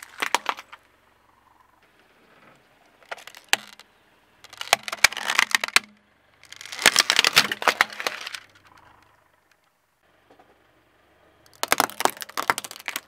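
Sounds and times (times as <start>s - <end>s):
plastic cracking and snapping: 0.0s - 0.8s, 3.0s - 3.8s, 4.5s - 8.6s, 11.5s - 13.0s.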